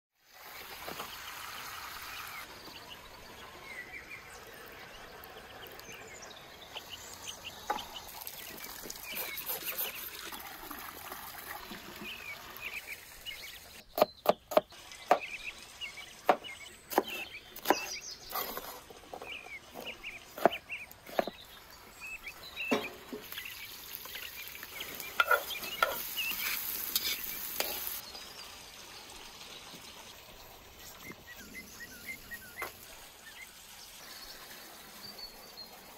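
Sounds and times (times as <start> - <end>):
cleaver chopping on wooden board: 13.9 - 15.3, 16.3 - 17.9.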